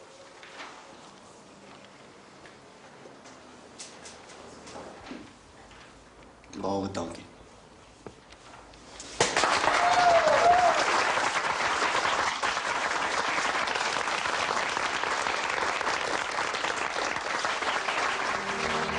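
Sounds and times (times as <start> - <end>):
audience applauding: 9.2 - 18.9.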